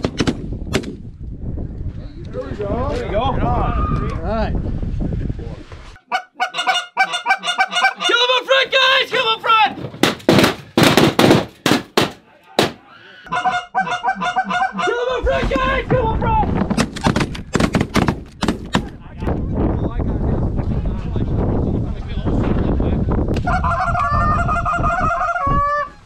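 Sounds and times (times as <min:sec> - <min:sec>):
geese honking: 0:06.0 - 0:09.4, 0:12.8 - 0:15.3
sharp cracks: 0:09.9 - 0:12.8, 0:16.7 - 0:19.0
shotgun shots: 0:10.0 - 0:12.8.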